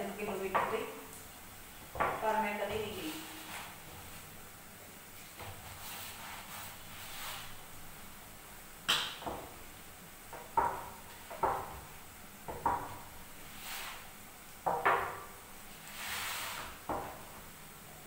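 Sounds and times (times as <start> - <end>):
soft rustling: 2.1 - 4.4.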